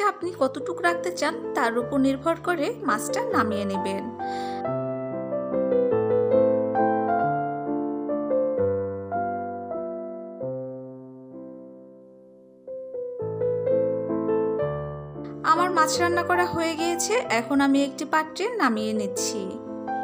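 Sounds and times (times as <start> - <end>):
gentle keyboard tune: 0.0 - 20.0.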